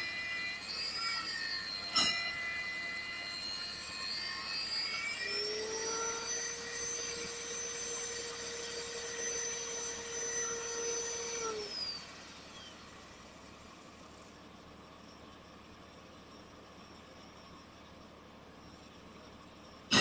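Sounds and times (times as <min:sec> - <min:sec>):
drill motor whining: 0:00.0 - 0:14.3.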